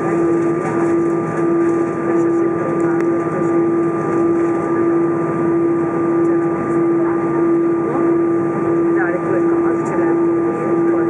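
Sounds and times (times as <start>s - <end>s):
steady humming tone: 0.0s - 11.0s.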